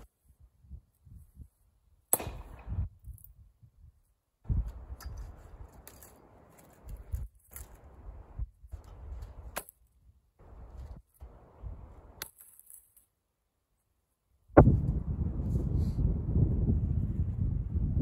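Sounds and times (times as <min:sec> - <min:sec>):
wind rumble on microphone: 0:00.2 - 0:01.6, 0:02.2 - 0:05.8, 0:06.8 - 0:12.2, 0:14.5 - 0:18.0.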